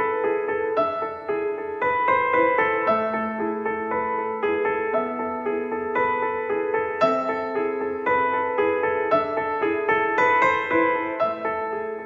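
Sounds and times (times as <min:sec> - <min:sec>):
gentle piano melody: 0:00.0 - 0:12.0.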